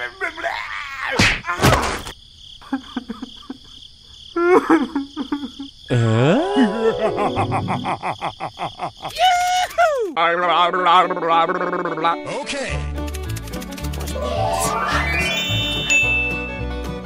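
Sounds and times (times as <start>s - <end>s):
fast clicking rattle: 13.0s - 14.2s
warbling tone: 14.0s - 16.4s
cartoon whoosh: 14.1s - 16.3s
squeaky chirps: 14.1s - 16.5s.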